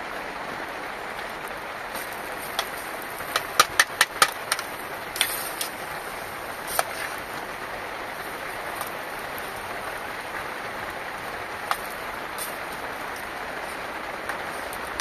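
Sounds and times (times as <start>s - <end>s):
steady rain: 0.0s - 15.0s
sharp knocks: 2.5s - 5.8s.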